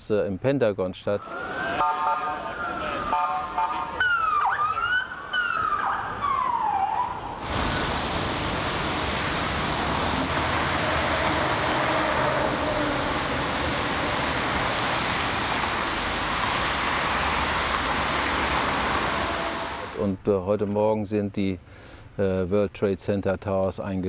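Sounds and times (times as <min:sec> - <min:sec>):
electronic siren sweeping: 0:01.2 - 0:07.4
engines and traffic rushing: 0:01.2 - 0:20.2.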